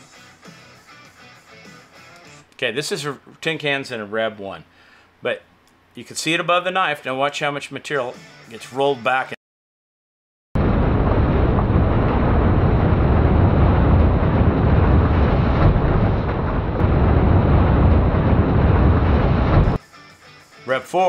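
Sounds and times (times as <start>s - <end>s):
baler mechanical rumble: 10.6s - 19.8s.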